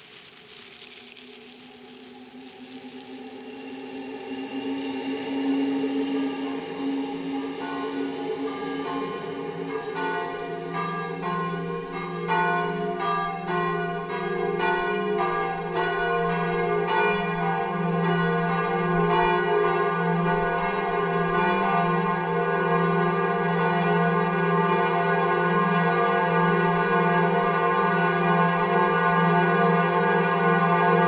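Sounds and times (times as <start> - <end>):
steady low drone: 0.0 - 13.1
church bells ringing: 5.6 - 31.0.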